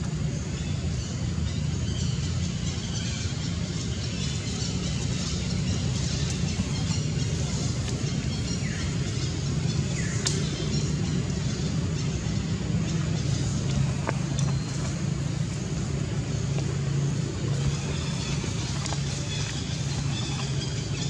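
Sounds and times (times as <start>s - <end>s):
steady low rumble: 0.0s - 21.0s.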